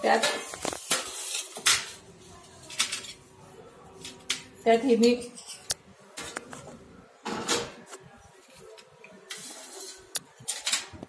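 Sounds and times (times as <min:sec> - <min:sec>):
spoon scraping steel bowls: 0:04.1 - 0:05.8, 0:09.2 - 0:10.6.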